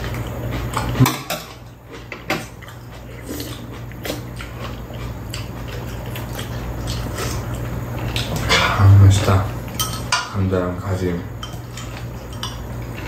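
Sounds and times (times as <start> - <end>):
people chewing: 0.0 - 10.1, 11.4 - 13.0
chopsticks and spoons clicking on bowls: 9.7 - 10.4, 11.4 - 13.0.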